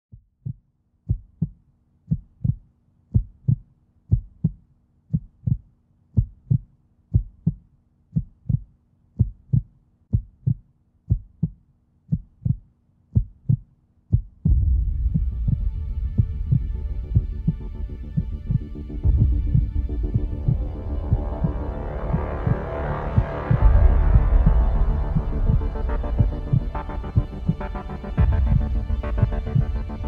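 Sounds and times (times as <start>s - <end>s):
heartbeat thumps: 0.1s - 30.0s
low drone: 14.5s - 30.0s.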